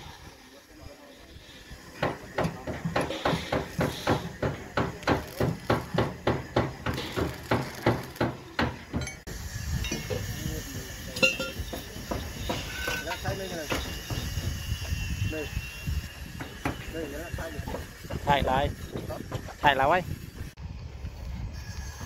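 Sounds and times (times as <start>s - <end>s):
voices: 0.0s - 8.9s, 9.9s - 20.1s
construction site noise: 0.0s - 22.0s
hammering on metal: 2.0s - 9.3s, 11.2s - 14.5s.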